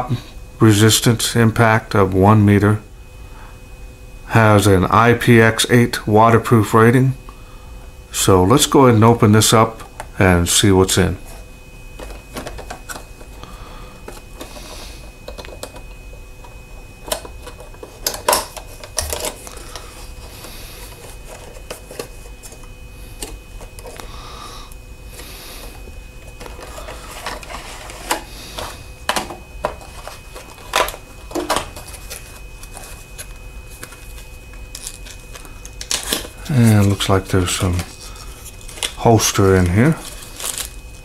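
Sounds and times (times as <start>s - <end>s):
packaging rustling and crinkling: 11.2s - 13.4s, 25.6s - 41.0s.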